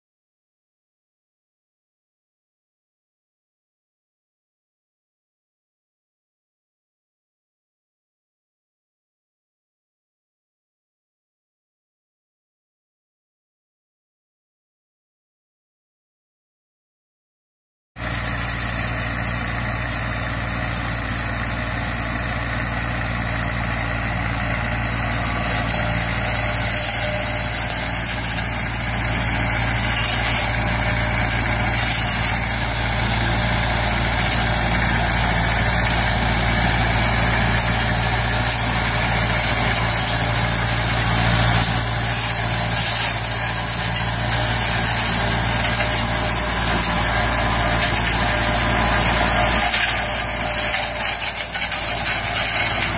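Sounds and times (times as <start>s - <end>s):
crackles of cutting grass: 18.0s - 52.9s
flail mower whirring: 18.0s - 52.9s
tractor engine running: 18.0s - 52.9s.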